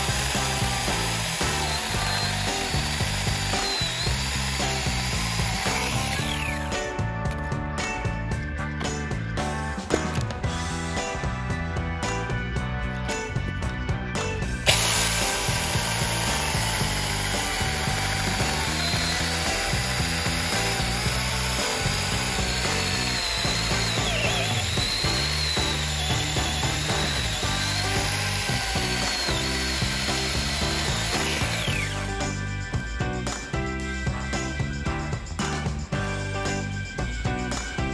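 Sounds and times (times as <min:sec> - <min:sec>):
chainsaw cutting through log: 0:00.0 - 0:06.9, 0:14.6 - 0:32.4.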